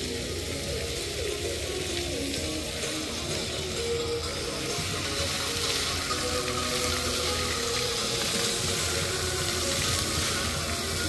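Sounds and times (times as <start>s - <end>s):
fountain water splashing: 0.0s - 11.0s
music playing: 0.0s - 11.0s.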